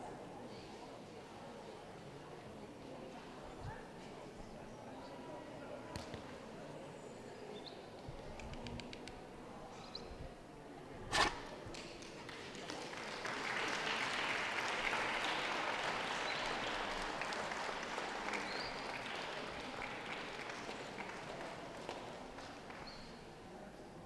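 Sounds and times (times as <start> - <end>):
audience applauding: 12.1 - 23.0.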